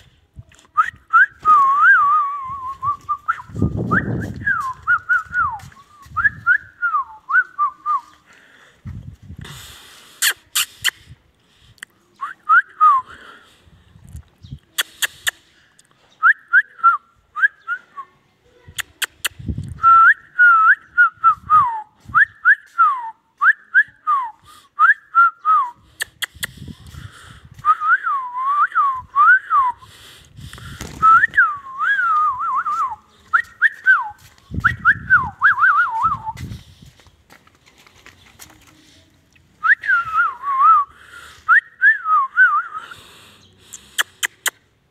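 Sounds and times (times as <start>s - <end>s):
person whistling: 0.8s - 8.2s, 19.8s - 25.8s, 27.6s - 29.9s, 31.0s - 36.4s, 39.6s - 43.1s.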